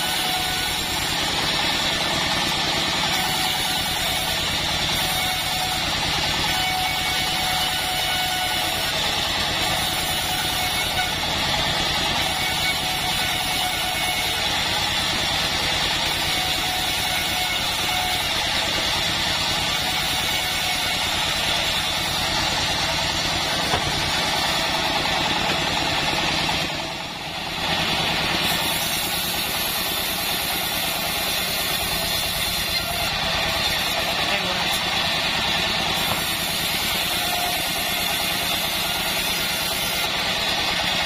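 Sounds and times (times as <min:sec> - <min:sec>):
bandsaw mill droning: 0:00.0 - 0:41.0.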